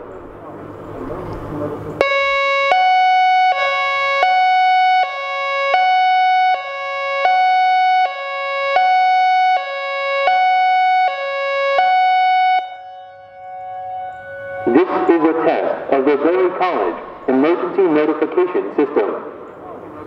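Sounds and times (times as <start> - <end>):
distant sirens: 0.0 - 20.0
warning siren hi-lo tone: 2.0 - 17.3.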